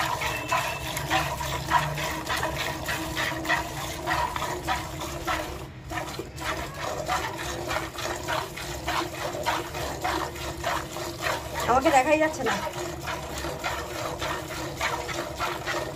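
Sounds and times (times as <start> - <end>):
milk squirting into bucket: 0.0 - 15.9.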